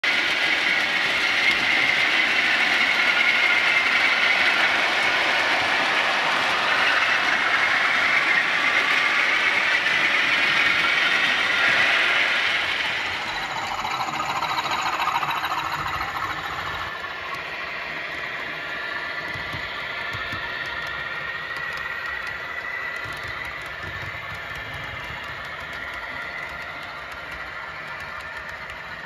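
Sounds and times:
wheels rumbling on rails: 0:00.0 - 0:29.0
electric model train motors whining: 0:00.1 - 0:29.0.

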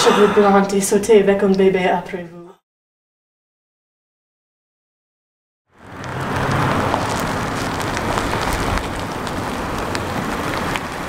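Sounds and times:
car engine and tyres rolling: 0:05.7 - 0:11.0.

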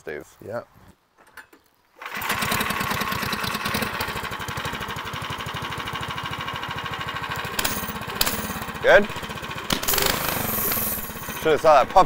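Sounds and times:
small gasoline engine idling: 0:02.0 - 0:12.0.

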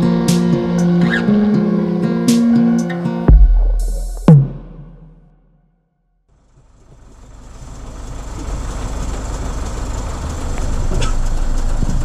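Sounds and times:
vehicle engine rumbling: 0:03.3 - 0:05.3, 0:06.4 - 0:12.0.

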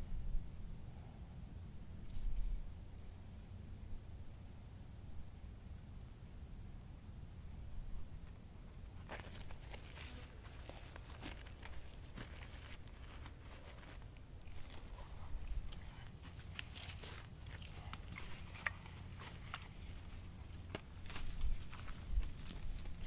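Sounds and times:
dry leaves rustling: 0:09.0 - 0:23.0.

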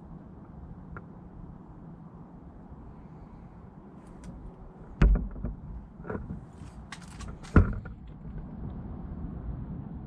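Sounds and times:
sharp knocks: 0:05.0 - 0:06.3.

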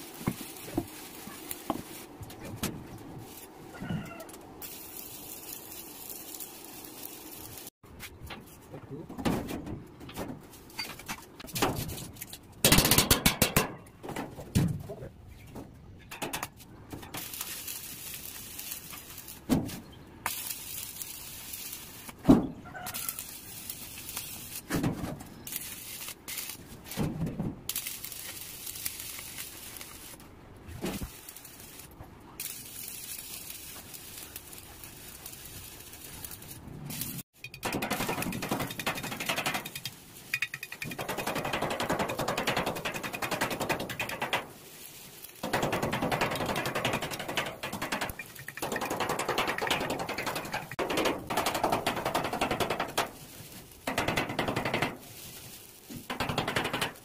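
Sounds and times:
welding arc crackling: 0:00.0 - 0:03.6, 0:04.3 - 0:07.8, 0:16.4 - 0:22.2, 0:22.8 - 0:27.0, 0:27.7 - 0:57.0.

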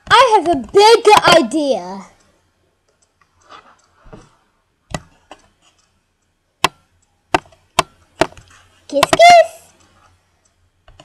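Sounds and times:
sharp clicks: 0:00.0 - 0:04.0, 0:04.9 - 0:11.0
soft rustling: 0:02.9 - 0:06.0.

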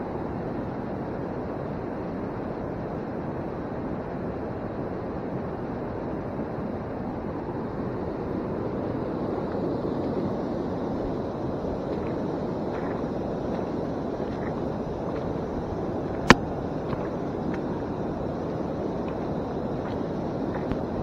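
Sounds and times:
steady rushing noise: 0:10.8 - 0:21.0.

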